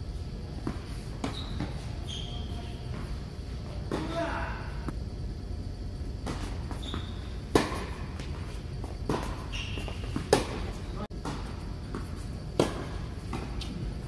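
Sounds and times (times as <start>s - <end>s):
low hall hum: 0.0s - 14.0s
tennis ball struck by rackets: 6.2s - 13.8s.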